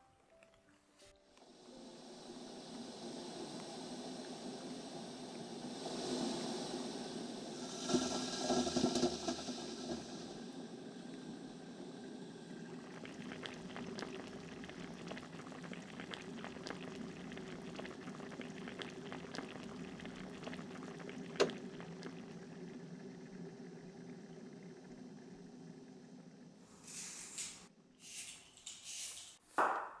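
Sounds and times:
water boiling and bubbling: 1.4s - 26.7s.

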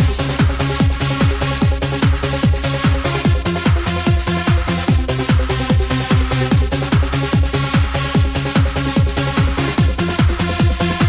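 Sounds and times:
trance dance music: 0.0s - 11.0s.

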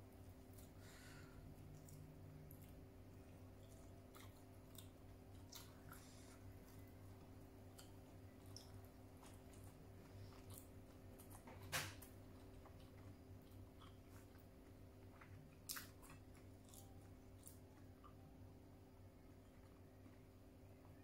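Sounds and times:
low steady hum: 0.0s - 21.0s
chewing and wet mouth clicks: 1.7s - 6.9s, 7.5s - 18.2s.

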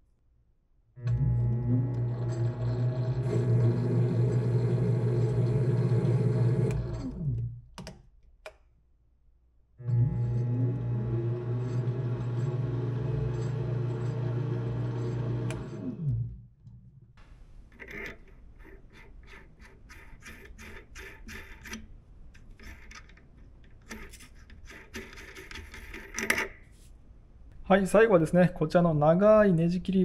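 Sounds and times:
lathe motor humming: 1.4s - 7.0s, 9.9s - 16.2s
metallic clicks and scrapes: 17.7s - 26.9s.

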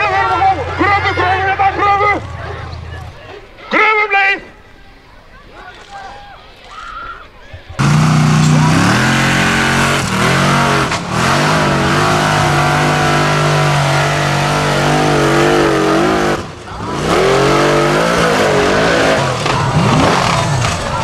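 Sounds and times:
buggy engine at high revs: 7.8s - 21.0s.

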